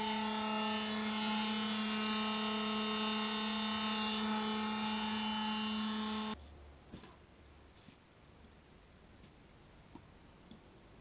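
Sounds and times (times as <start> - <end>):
small motor humming: 0.0 - 6.4.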